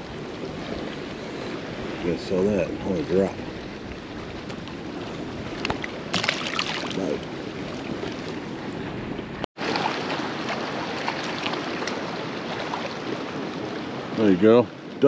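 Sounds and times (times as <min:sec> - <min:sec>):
wind buffeting microphone: 0:00.0 - 0:09.5
water lapping against kayak hull: 0:00.0 - 0:15.0.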